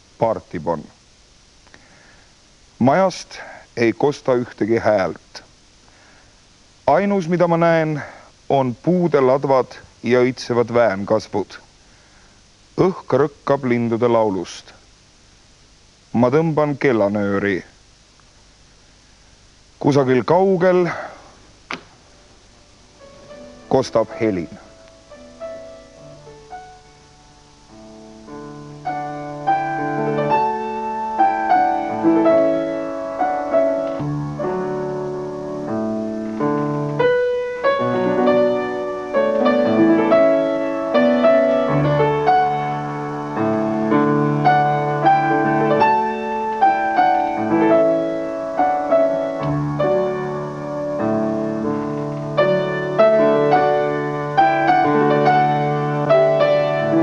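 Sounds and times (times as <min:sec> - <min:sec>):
solo grand piano: 0:23.0 - 0:57.0.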